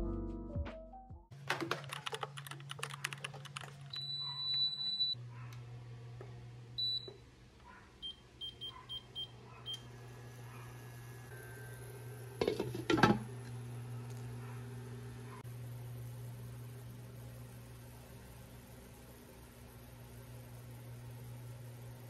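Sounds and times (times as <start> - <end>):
induction cooker beeps: 3.9 - 5.2, 6.8 - 7.2, 8.0 - 9.9.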